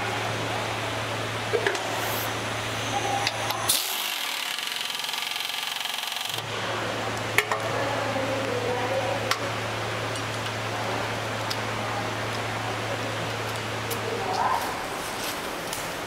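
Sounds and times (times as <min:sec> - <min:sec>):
workshop hum: 0:00.0 - 0:16.0
air nut runner whirring: 0:03.7 - 0:06.4.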